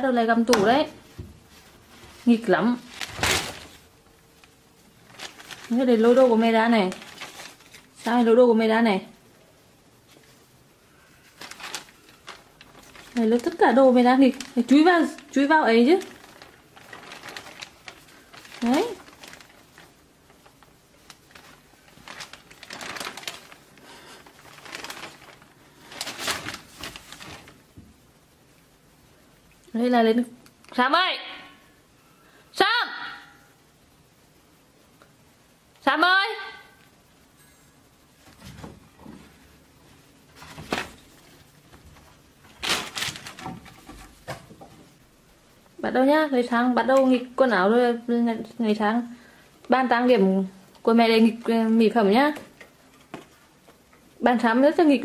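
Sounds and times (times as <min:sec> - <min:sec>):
plastic bag rustling: 0:00.3 - 0:08.5, 0:10.0 - 0:28.0, 0:38.2 - 0:45.0.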